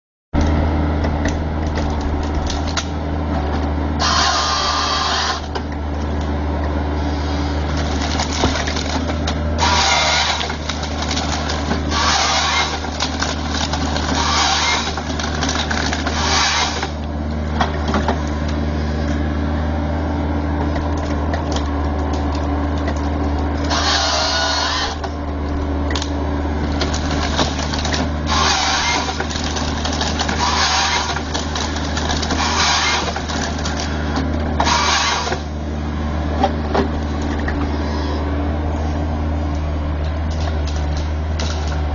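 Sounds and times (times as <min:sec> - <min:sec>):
excavator engine hum: 0:00.4 - 0:41.9
harvester head cutting bursts: 0:04.0 - 0:05.5, 0:09.6 - 0:17.0, 0:23.6 - 0:25.1, 0:26.8 - 0:34.0, 0:34.6 - 0:35.6.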